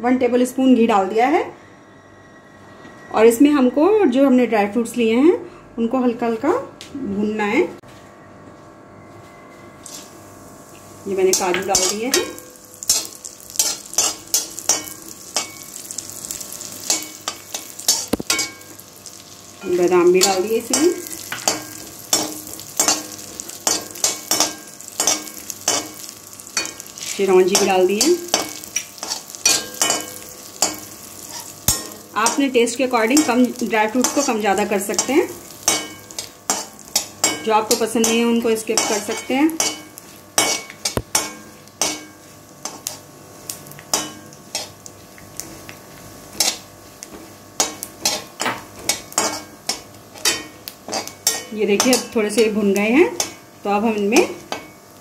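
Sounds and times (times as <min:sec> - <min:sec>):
metal spatula scraping pan: 0:09.8 - 0:10.1, 0:19.6 - 0:43.0
light sizzle: 0:09.8 - 0:55.0.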